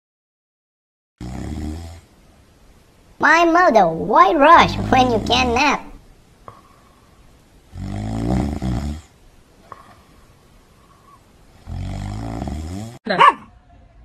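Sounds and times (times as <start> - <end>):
cat snoring: 1.2 - 2.1, 7.7 - 9.1, 11.6 - 13.0.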